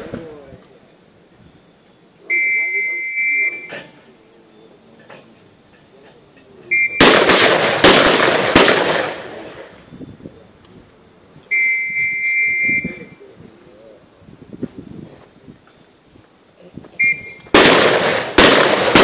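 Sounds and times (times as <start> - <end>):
steady high tone: 2.2 - 3.9, 11.5 - 13.3
rifle shots echoing: 6.9 - 9.8, 17.5 - 19.0.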